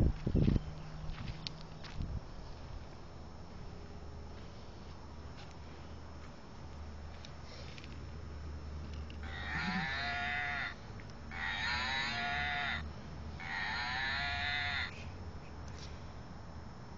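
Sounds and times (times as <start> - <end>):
toy mooing: 9.2 - 12.8, 13.4 - 15.0.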